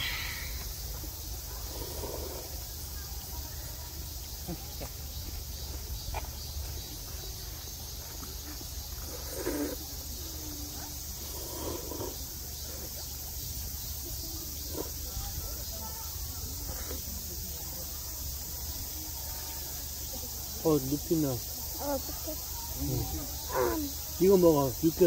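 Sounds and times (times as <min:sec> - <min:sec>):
high hiss: 0:00.0 - 0:03.8
insect-like drone: 0:00.0 - 0:25.0.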